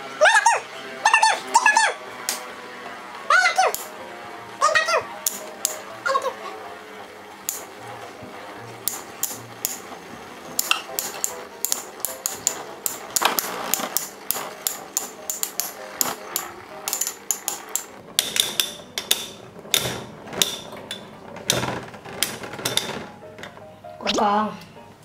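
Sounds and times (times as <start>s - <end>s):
metal spinning tops clashing: 5.2s - 5.9s, 8.8s - 21.6s.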